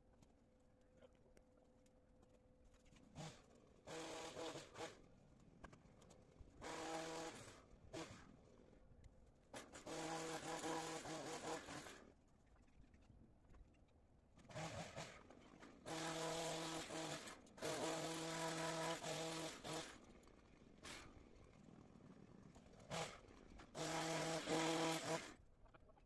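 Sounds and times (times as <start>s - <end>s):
hedge trimmer buzzing: 3.2s - 5.0s, 6.6s - 8.2s, 9.6s - 12.0s, 15.8s - 20.1s, 22.4s - 25.4s.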